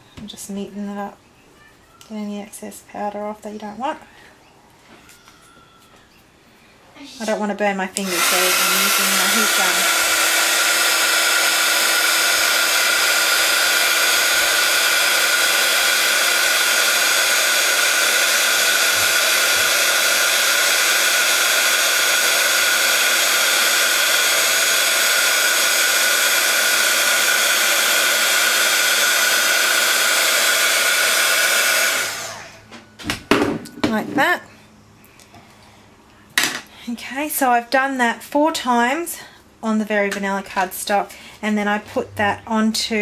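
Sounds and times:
heat gun blowing: 0:07.2 - 0:32.7.

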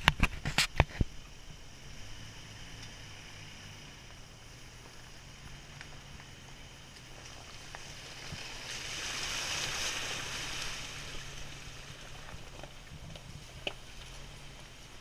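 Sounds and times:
engine humming at low revs: 0:00.0 - 0:15.0
tyres splashing through water: 0:07.4 - 0:13.0.

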